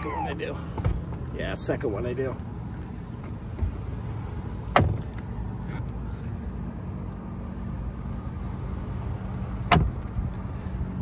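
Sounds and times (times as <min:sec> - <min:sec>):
seat clunk: 0:09.6 - 0:10.2.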